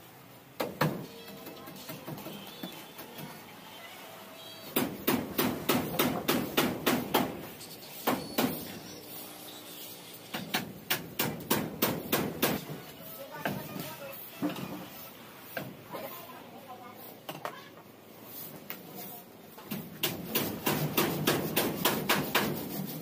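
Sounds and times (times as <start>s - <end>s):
rapid sharp knocks: 10.3s - 12.6s, 20.0s - 22.6s.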